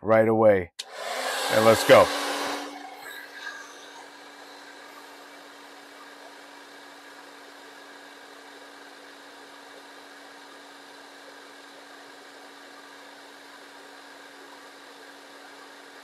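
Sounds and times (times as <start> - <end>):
hair dryer running: 0.8 - 7.2.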